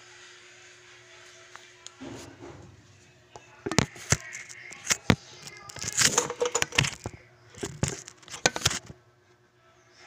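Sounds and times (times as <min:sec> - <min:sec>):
sharp clicks and knocks: 0:04.8 - 0:08.9.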